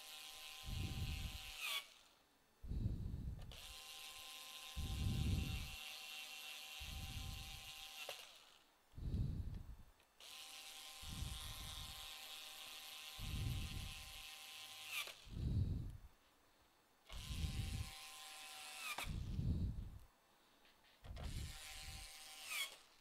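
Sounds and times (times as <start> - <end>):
electric screwdriver whirring: 0.0 - 2.2, 3.4 - 8.6, 10.2 - 15.4, 17.1 - 19.4, 21.1 - 22.9.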